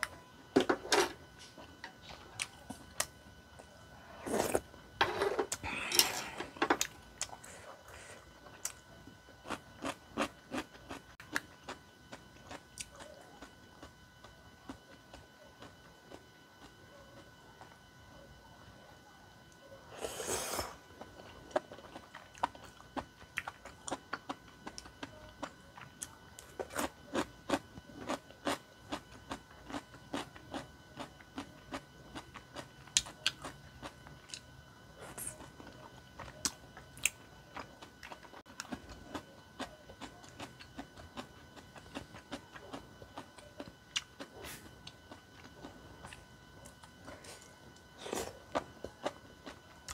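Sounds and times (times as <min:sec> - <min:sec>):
slurping noodles: 0:04.0 - 0:06.3, 0:19.9 - 0:20.8
chewing with wet mouth clicks: 0:21.5 - 0:34.5.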